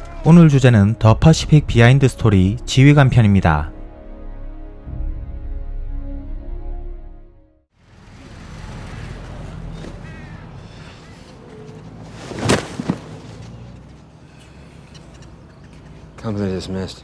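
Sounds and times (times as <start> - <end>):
body thudding onto ground: 12.1 - 13.4.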